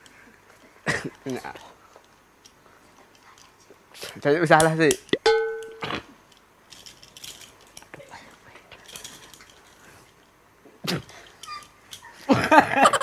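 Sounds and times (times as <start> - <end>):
handcuffs clicking and ratcheting: 6.3 - 7.9, 8.8 - 9.8.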